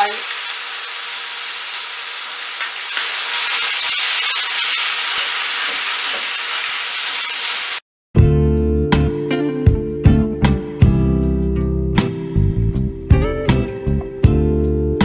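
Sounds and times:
paste sizzling in hot oil: 0.0s - 7.8s.

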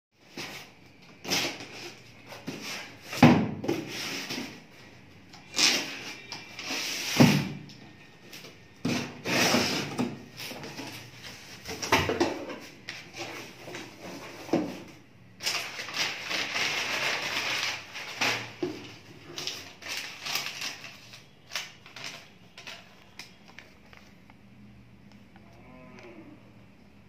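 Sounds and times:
packing paper crackling: 15.4s - 24.4s
paper being unfolded: 19.2s - 24.3s.

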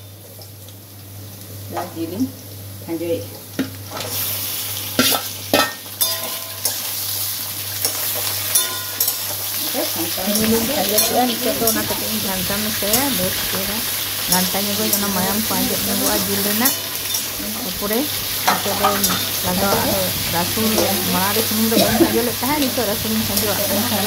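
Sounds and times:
chicken sizzling in hot oil: 0.0s - 24.0s.

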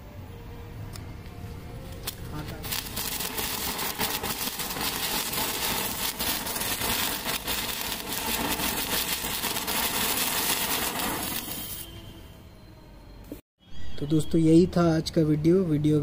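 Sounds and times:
firework crackling: 2.0s - 12.2s
firework sparks hissing: 2.0s - 12.2s.

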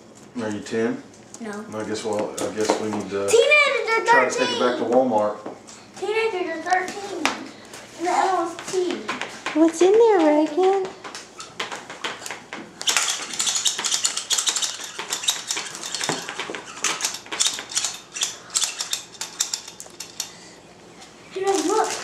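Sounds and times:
plastic toys clattering and crinkling: 21.4s - 22.0s.

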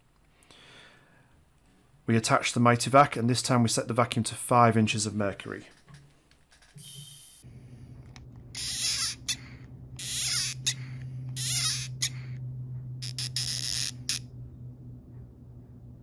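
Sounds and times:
low steady hum: 0.0s - 16.0s
hand vacuum pump squeaking: 8.6s - 12.3s.

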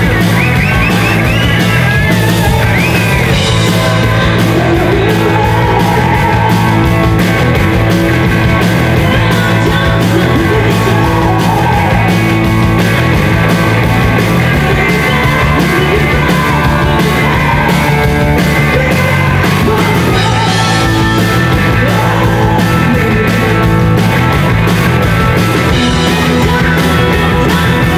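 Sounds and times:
live rock band playing: 0.0s - 27.9s
woman singing into microphone: 3.7s - 6.7s, 9.0s - 12.1s, 14.5s - 17.8s, 18.7s - 23.6s.

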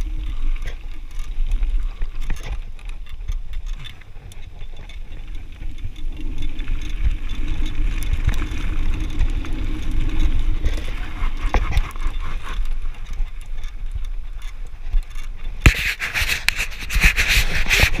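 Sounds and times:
bike rattling: 0.0s - 18.0s
bike tyres crunching over gravel: 0.0s - 18.0s
tyres sliding over gravel: 4.0s - 14.9s.

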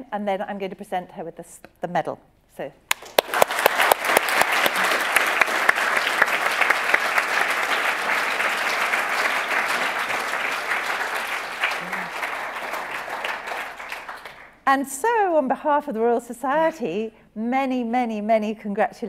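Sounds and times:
audience applause: 2.9s - 14.6s.

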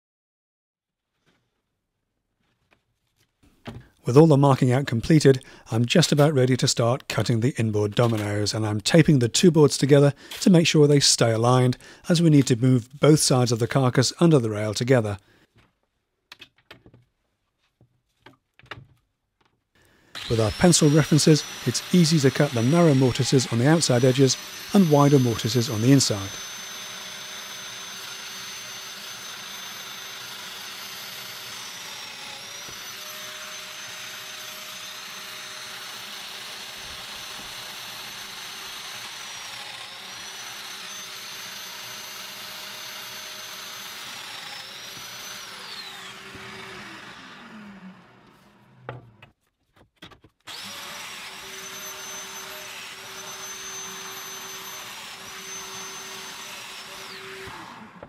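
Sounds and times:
power joiner cutting wood: 20.1s - 49.4s, 50.4s - 58.0s.

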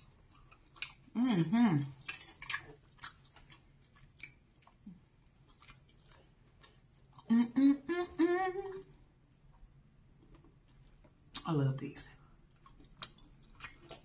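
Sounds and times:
wet mouth clicks and smacks: 2.0s - 6.3s, 12.6s - 14.0s
woman humming: 7.3s - 8.9s.

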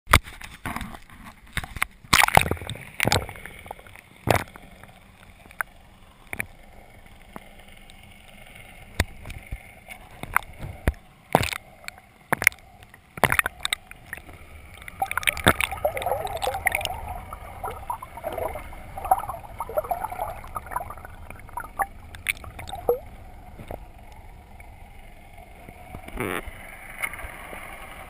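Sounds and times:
water splashes and knocks: 1.6s - 4.6s, 10.2s - 11.6s, 13.2s - 23.0s
muffled underwater sloshing: 8.4s - 26.0s.

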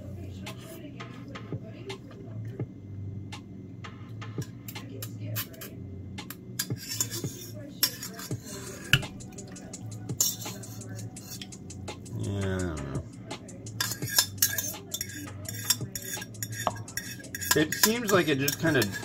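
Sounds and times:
utensils scraping steel bowl: 6.6s - 11.6s, 13.7s - 19.0s
utensils clanking: 6.6s - 13.0s, 13.7s - 19.0s.

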